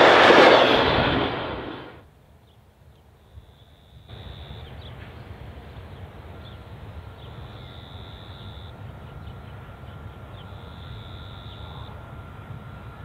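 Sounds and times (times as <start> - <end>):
faint steady whine: 3.1 - 13.0
diesel locomotive rumble: 4.1 - 13.0.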